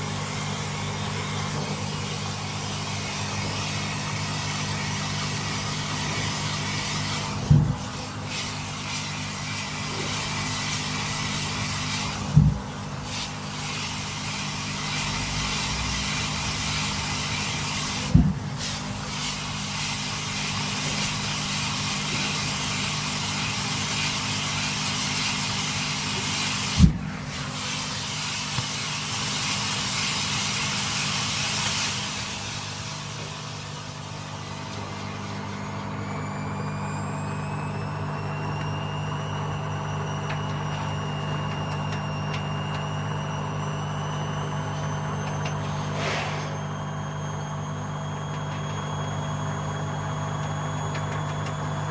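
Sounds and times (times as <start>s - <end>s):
firework fountain hissing: 0.0s - 34.4s, 45.8s - 46.8s.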